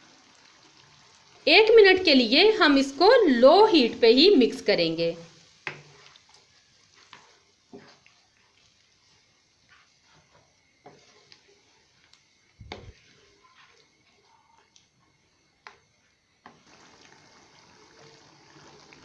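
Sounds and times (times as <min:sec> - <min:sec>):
faint steady hiss: 0:00.0 - 0:19.0
wooden spatula scraping wok: 0:05.3 - 0:15.8.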